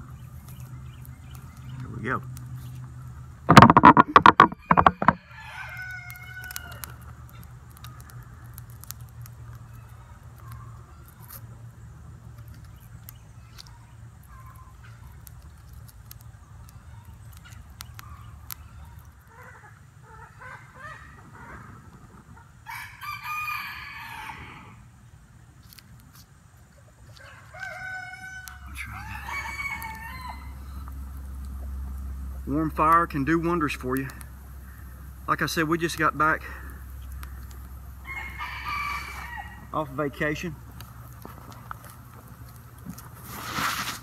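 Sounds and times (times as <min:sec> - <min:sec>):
rooster crowing: 0:04.2 - 0:07.0, 0:22.6 - 0:24.8, 0:27.2 - 0:30.9, 0:38.0 - 0:39.8
steady low hum: 0:28.5 - 0:38.4.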